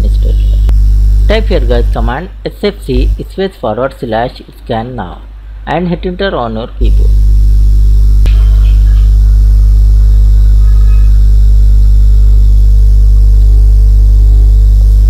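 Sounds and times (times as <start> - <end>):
loud low hum: 0.0 - 3.3, 6.8 - 15.0.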